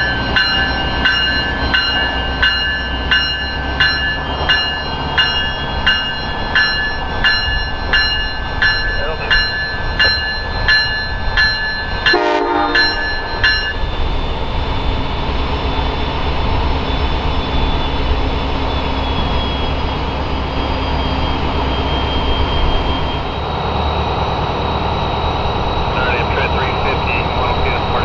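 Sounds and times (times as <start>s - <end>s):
locomotive bell ringing: 0.0s - 28.0s
locomotive engine running with whine: 0.0s - 28.0s
train horn blast: 12.1s - 13.0s.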